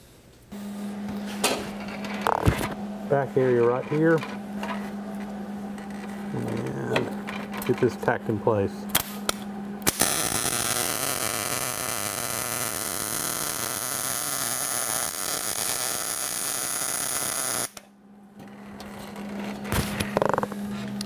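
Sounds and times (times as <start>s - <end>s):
low steady hum: 0.0s - 13.8s, 17.8s - 21.0s
welding arc on steel: 9.8s - 17.8s.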